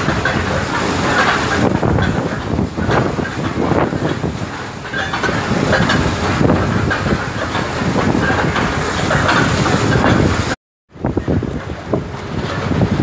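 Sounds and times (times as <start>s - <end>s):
choppy sea water: 0.0s - 13.0s
wind on microphone: 0.0s - 13.0s.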